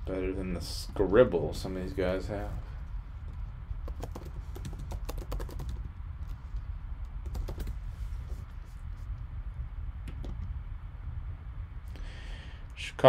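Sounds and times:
typing on computer keyboard: 3.8 - 5.9, 7.2 - 7.7.

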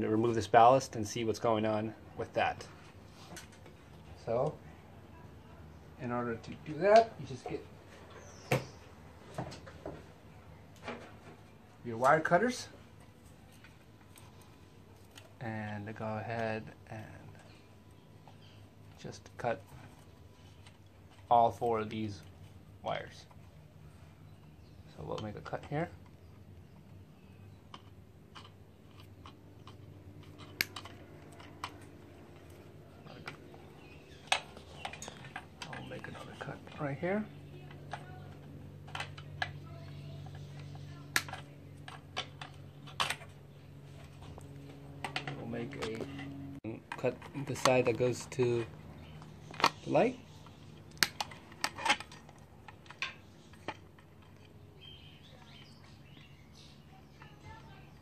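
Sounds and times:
wire cutters snapping wire: 40.3 - 43.4, 50.8 - 54.4.

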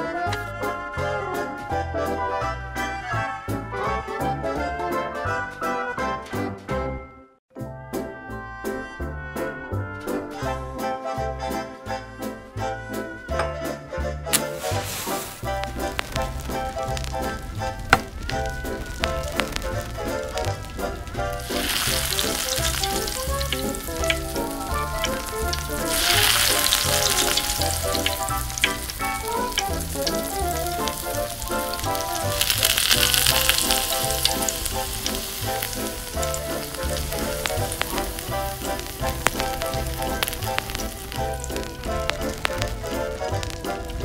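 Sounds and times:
patties sizzling in a pan: 14.4 - 44.0.

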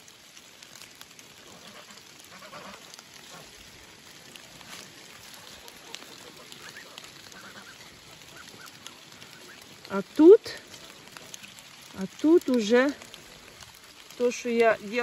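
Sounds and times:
light rain falling: 0.0 - 15.0
soft water drips: 0.0 - 15.0
distant farm animal calls: 5.2 - 9.8.

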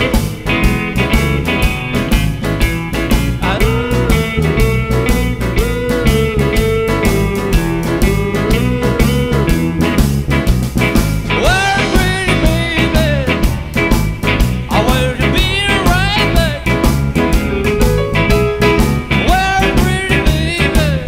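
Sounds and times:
blues band playing: 0.0 - 21.0
man singing into a microphone: 3.4 - 9.9, 11.3 - 13.5, 14.7 - 16.8, 19.2 - 21.0.

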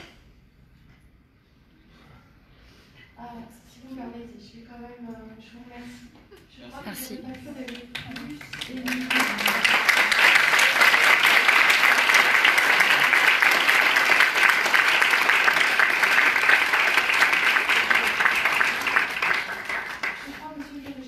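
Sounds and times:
crowd applauding: 7.8 - 21.0.

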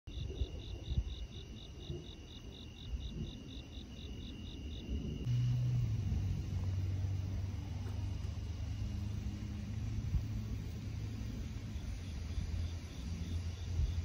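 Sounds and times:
crickets chirping: 0.1 - 14.0
low rumbling: 4.8 - 14.0
loud low steady hum: 5.2 - 14.0.

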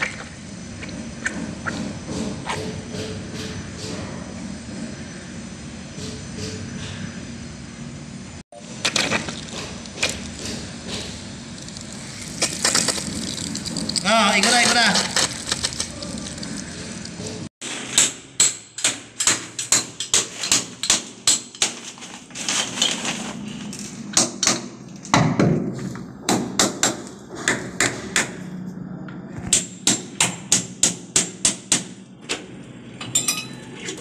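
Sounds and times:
hammer striking chisel on wall: 29.5 - 32.0.

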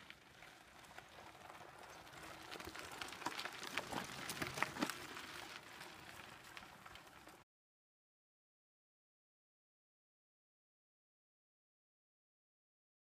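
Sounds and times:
bike tyres crunching over gravel: 0.0 - 7.4.

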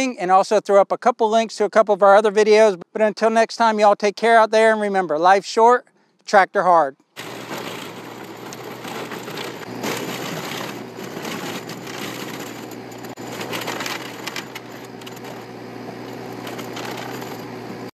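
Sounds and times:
chipper flywheel spinning: 7.2 - 17.9
tractor humming: 7.2 - 17.9
wood chipper splintering branches: 7.2 - 17.9.

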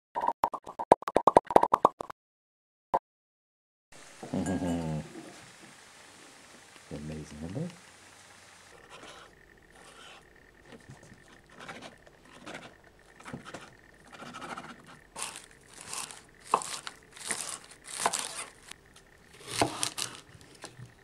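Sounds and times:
knife chopping onions on wood: 11.5 - 18.6, 19.4 - 20.2.

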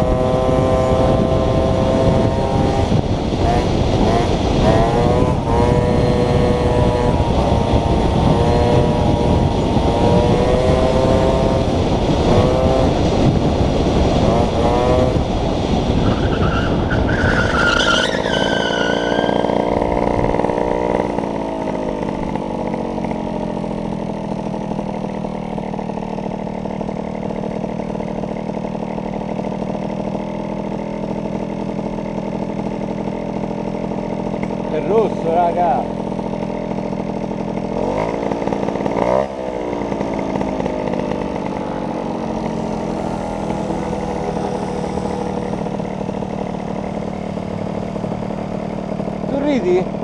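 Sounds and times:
wind noise on microphone: 0.0 - 18.3, 19.4 - 22.5
motorcycle engine revving: 0.0 - 50.0
high squeal: 16.0 - 19.7.

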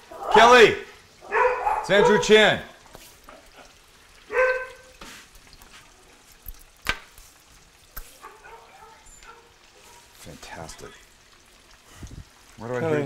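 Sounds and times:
dog barking: 0.1 - 0.6, 1.2 - 2.4, 3.6 - 5.0, 8.1 - 10.1.

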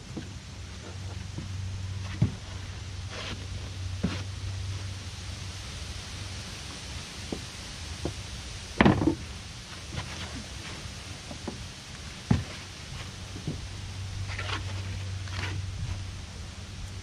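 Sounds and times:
low steady hum: 0.0 - 17.0
bench scuffing: 0.2 - 4.3, 12.3 - 13.7
wooden bench knocking: 8.8 - 9.2.

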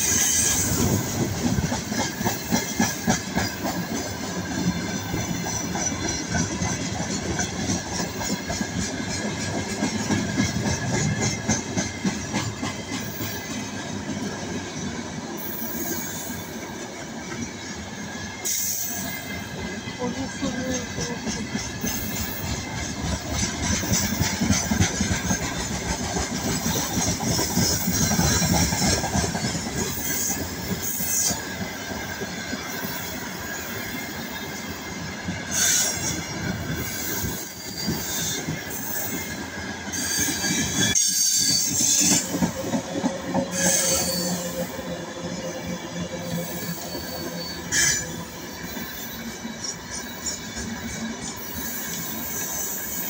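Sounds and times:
train wheels rumbling on rails: 0.0 - 53.0
high-pitched wheel squeal: 39.9 - 42.2, 43.4 - 44.7, 46.2 - 49.2.

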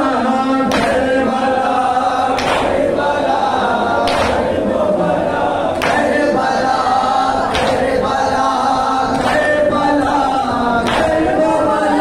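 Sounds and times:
man singing into a microphone: 0.0 - 2.1, 6.2 - 12.0
crowd of men chanting: 0.0 - 12.0.

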